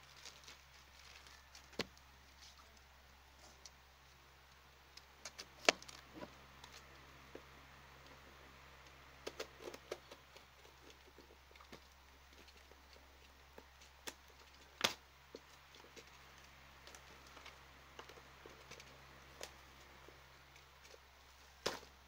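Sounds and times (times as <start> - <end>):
sharp snap: 14.8 - 15.0.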